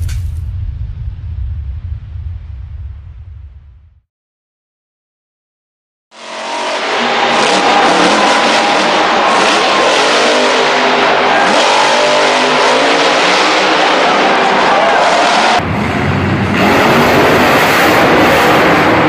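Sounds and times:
truck engine revving hard: 6.1s - 19.0s.

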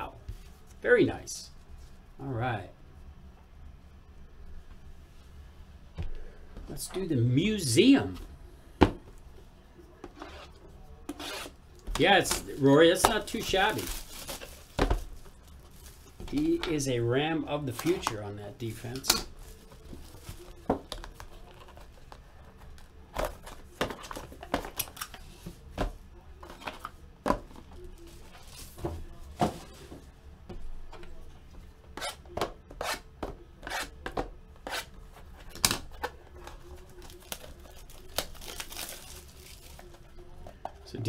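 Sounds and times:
wrappers rustling and tearing: 10.2s - 16.9s, 18.8s - 22.2s, 35.3s - 40.1s.

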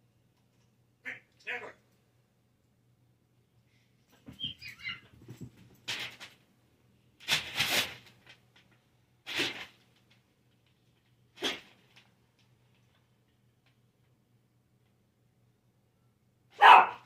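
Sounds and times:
dog barking: 16.5s - 17.0s.

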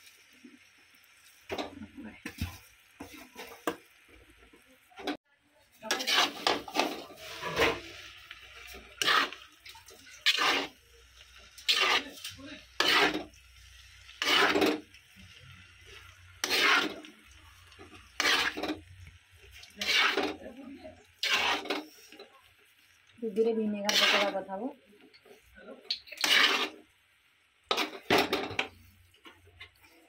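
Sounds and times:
metal spatula scraping a wok: 5.8s - 22.3s, 23.4s - 24.6s, 25.3s - 26.9s, 27.6s - 28.9s.

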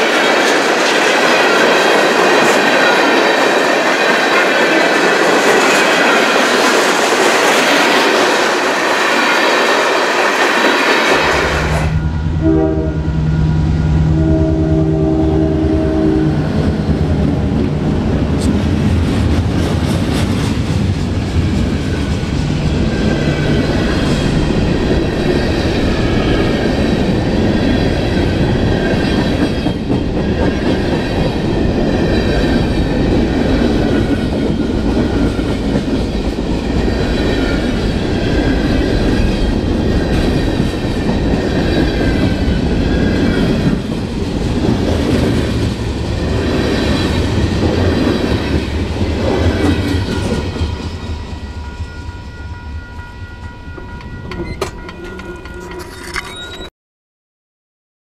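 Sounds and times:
freight train wheels rumbling on track: 0.0s - 56.7s
faint high wheel squeal: 51.8s - 56.7s.

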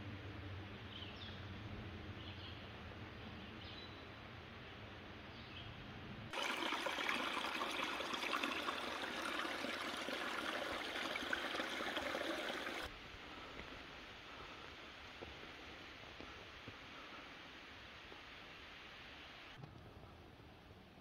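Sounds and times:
stream trickling over stones: 6.3s - 12.9s.

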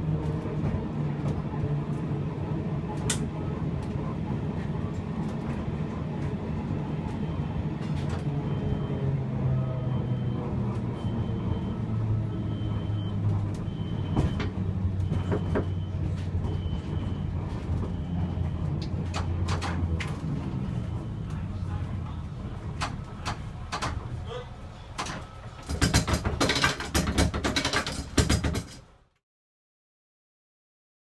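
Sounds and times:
tram humming under way: 0.0s - 29.1s
wheels knocking over rail joints: 24.9s - 29.0s.

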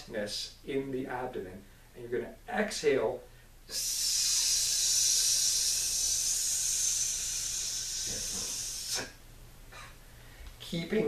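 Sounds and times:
man exhaling with a hiss: 3.7s - 9.2s.

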